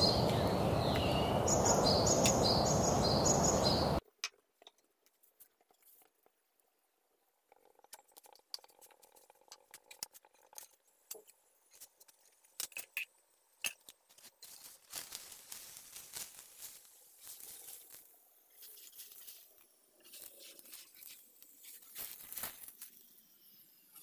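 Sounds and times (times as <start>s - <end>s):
flatbread sizzling in oil: 14.0s - 24.0s.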